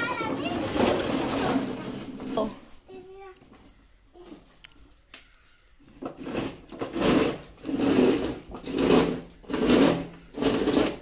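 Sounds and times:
plastic toy wheels rattling on tiles: 0:00.0 - 0:02.5, 0:06.0 - 0:11.0.

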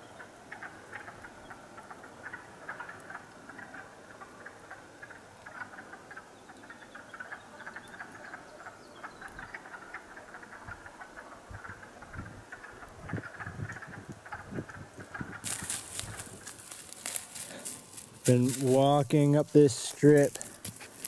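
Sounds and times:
frogs croaking: 0:00.0 - 0:21.0
soft footsteps: 0:15.4 - 0:21.0.

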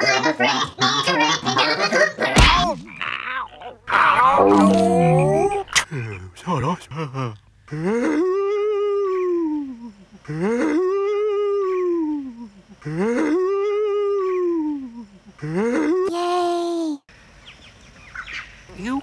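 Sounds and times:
cartoon elephant trumpeting: 0:02.8 - 0:05.7.

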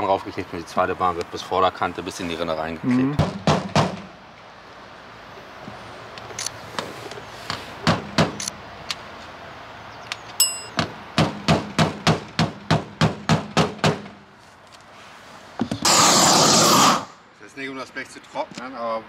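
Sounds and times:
short metallic ring: 0:10.4 - 0:10.8.

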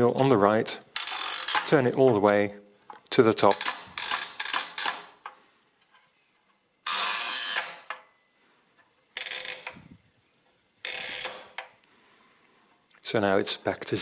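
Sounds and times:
ratcheting dial turns: 0:01.0 - 0:01.7, 0:03.4 - 0:05.4.

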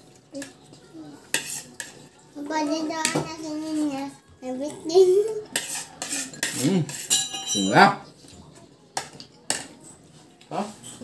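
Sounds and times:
cutlery clinking on plates: 0:00.3 - 0:02.2, 0:05.4 - 0:10.5.

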